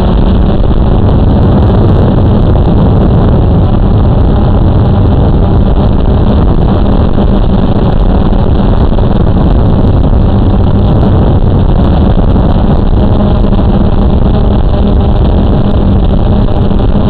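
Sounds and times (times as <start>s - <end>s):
drone propellers buzzing: 0.0s - 17.0s.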